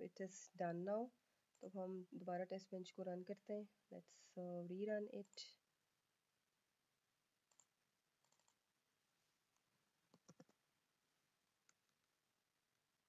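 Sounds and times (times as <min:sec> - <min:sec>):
computer mouse clicks: 0:07.5 - 0:08.6, 0:10.1 - 0:10.6.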